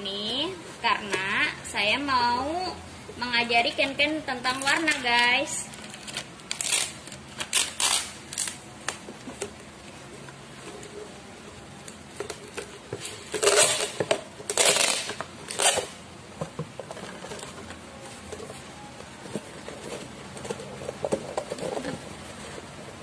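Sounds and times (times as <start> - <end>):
packing tape pulled off roll: 5.7 - 9.1, 13.1 - 16.0
cardboard clicks and rustling: 5.7 - 23.0.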